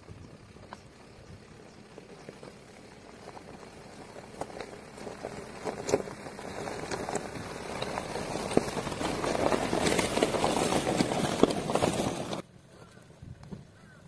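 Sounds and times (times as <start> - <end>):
tyres crunching on gravel: 0.0 - 14.0.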